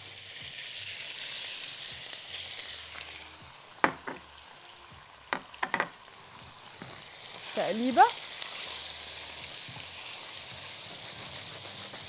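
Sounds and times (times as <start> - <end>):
chicken sizzling in hot oil: 0.0 - 12.0
clinks and knocks of bowl and spatula: 5.4 - 6.0.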